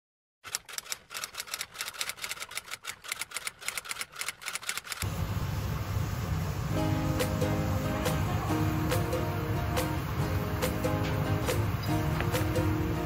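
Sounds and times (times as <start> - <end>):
typewriter-like key clicks: 0.5 - 5.1.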